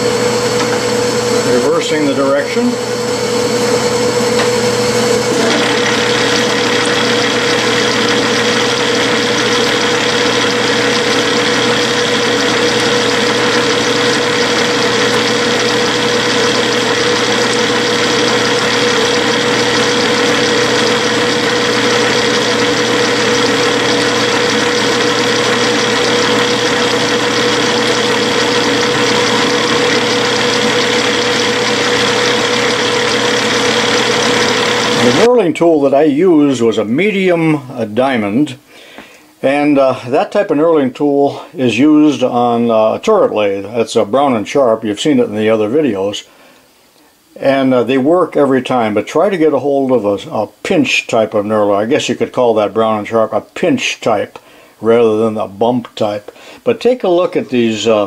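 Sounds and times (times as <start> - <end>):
metal lathe running: 0.0 - 35.4.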